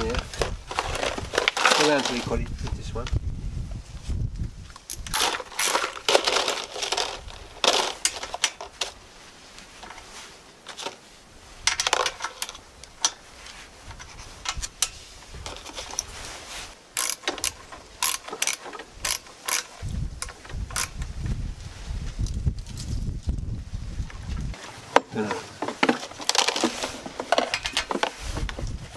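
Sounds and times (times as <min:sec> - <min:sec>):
hand ratchet clicking on metal: 0:17.0 - 0:21.0.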